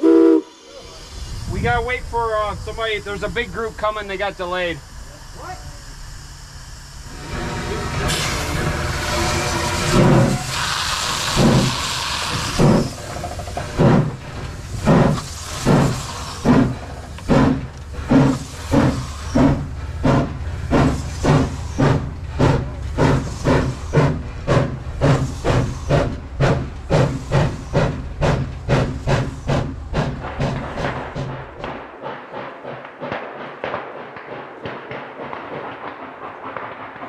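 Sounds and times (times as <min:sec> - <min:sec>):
steam hissing: 0:00.0 - 0:33.1
steam locomotive exhaust chuffs: 0:00.0 - 0:37.0.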